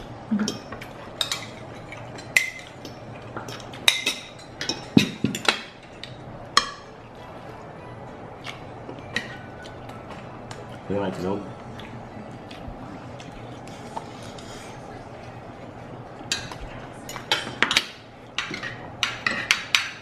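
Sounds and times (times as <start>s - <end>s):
cutlery clinking on plates: 0.4s - 6.9s, 16.2s - 20.0s.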